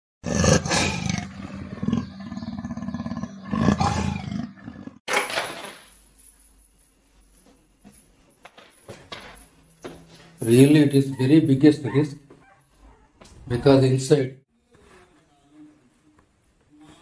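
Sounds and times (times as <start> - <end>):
big cat roaring: 0.2 - 5.0.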